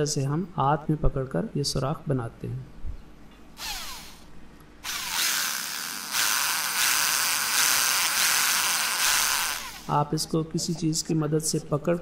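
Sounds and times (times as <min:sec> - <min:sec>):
electric drill whining: 0:03.6 - 0:09.9.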